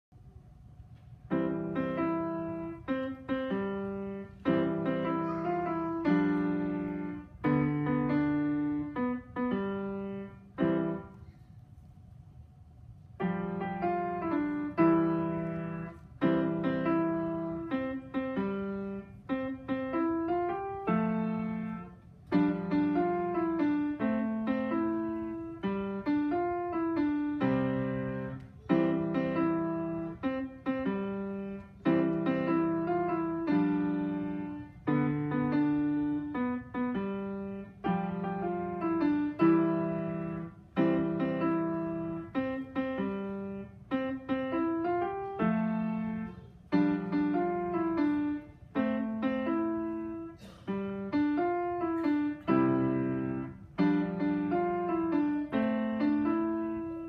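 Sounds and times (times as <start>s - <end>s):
grand piano playing: 1.2s - 11.3s, 12.5s - 57.0s.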